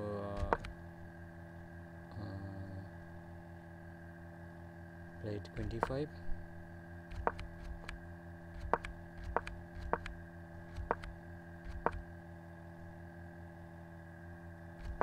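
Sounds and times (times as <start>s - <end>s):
steady electrical hum: 0.0s - 15.0s
sharp single clicks: 0.4s - 0.8s, 7.1s - 8.0s, 8.6s - 12.0s.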